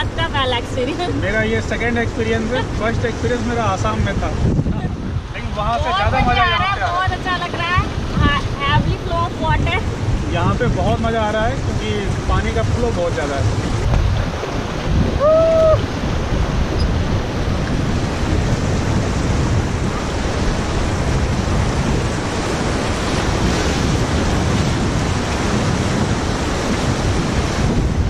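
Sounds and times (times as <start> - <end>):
wind buffeting microphone: 0.0 - 28.0
person crying out: 15.2 - 15.9.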